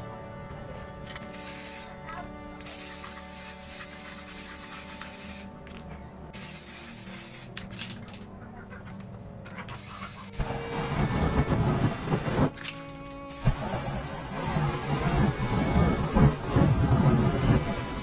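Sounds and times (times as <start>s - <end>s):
spray can hissing: 1.1s - 5.5s, 6.4s - 7.8s, 9.8s - 18.0s.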